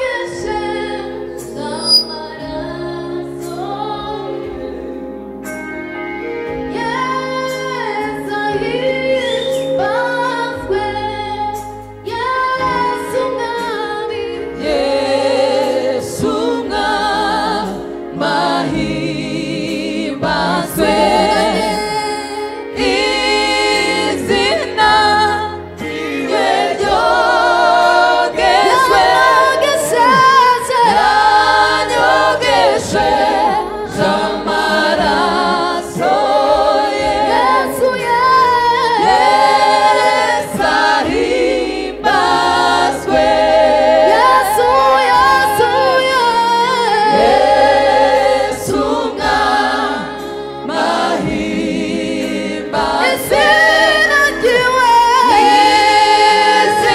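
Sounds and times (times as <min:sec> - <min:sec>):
gospel choir singing: 0:00.0 - 0:56.9.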